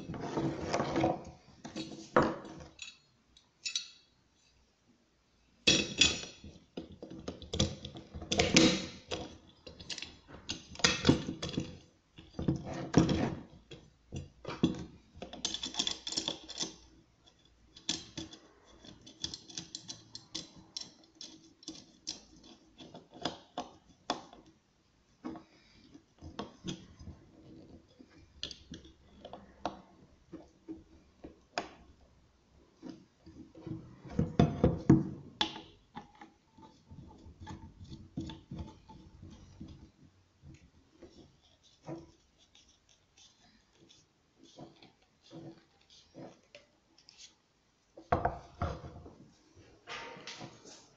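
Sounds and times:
angle grinder parts clicking and rattling: 14.2s - 23.9s.

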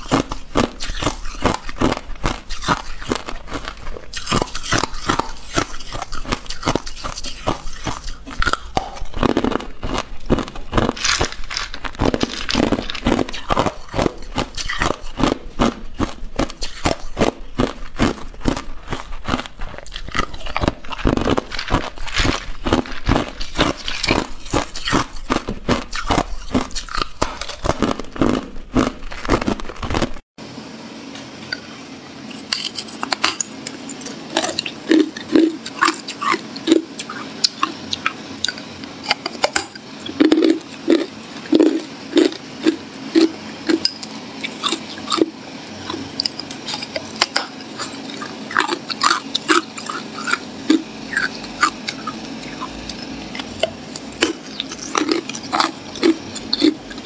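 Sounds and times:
crushed ice crunching: 0.0s - 17.0s
chewing hard ice block: 0.0s - 30.2s, 32.3s - 57.0s.

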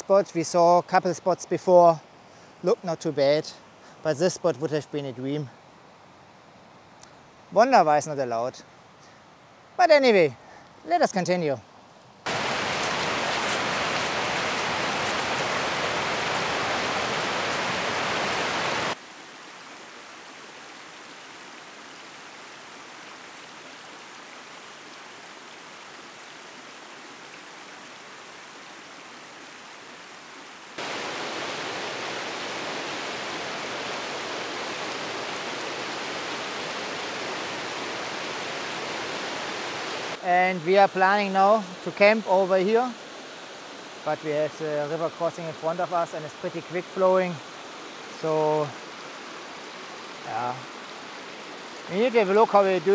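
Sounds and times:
rushing river water: 0.0s - 52.9s.

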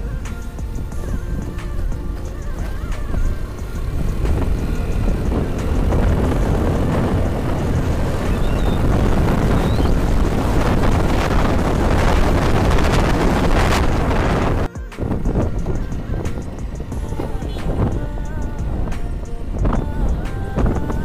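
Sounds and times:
motorcycle engine: 0.0s - 21.0s
wind buffeting microphone: 0.0s - 21.0s.

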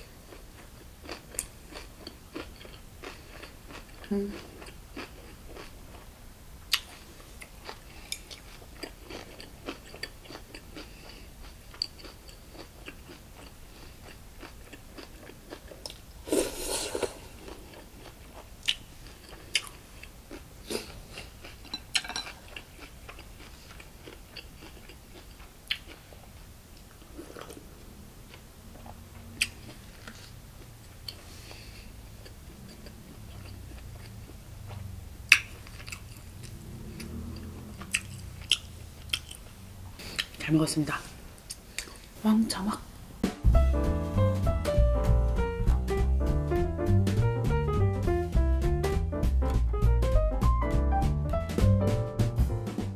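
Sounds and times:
person chewing: 0.0s - 6.1s, 6.7s - 27.7s, 28.3s - 40.4s, 41.4s - 42.2s.

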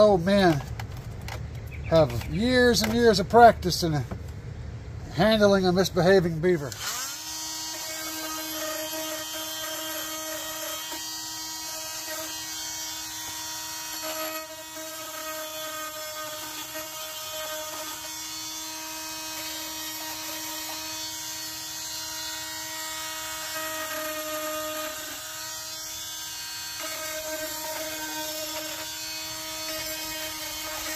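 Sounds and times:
rotary tool whining: 6.6s - 30.9s.

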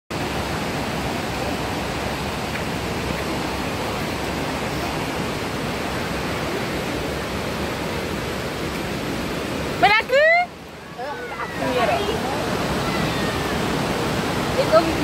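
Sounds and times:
river water rushing: 0.1s - 15.0s.

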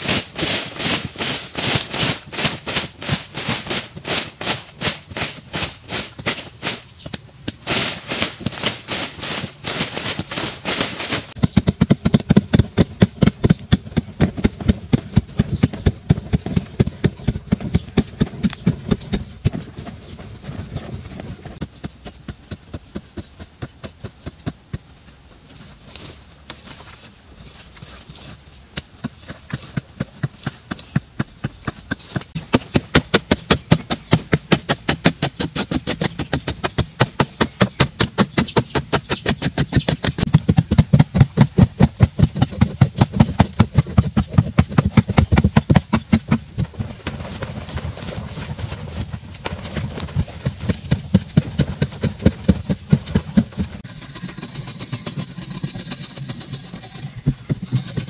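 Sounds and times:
thin high whine: 0.0s - 11.4s
digging tools chopping soil: 0.0s - 19.7s, 25.8s - 54.0s.

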